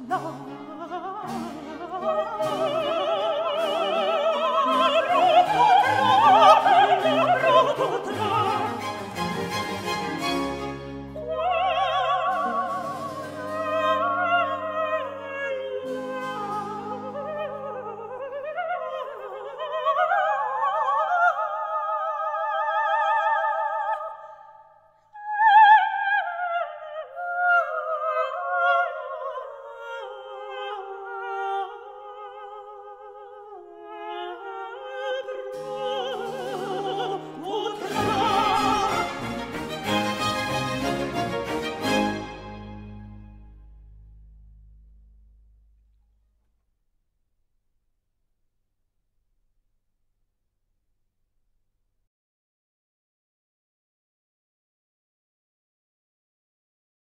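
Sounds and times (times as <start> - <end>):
operatic voice singing: 0.0 - 10.0, 11.1 - 24.1, 25.2 - 42.0
orchestral accompaniment: 0.0 - 18.2, 35.4 - 45.6.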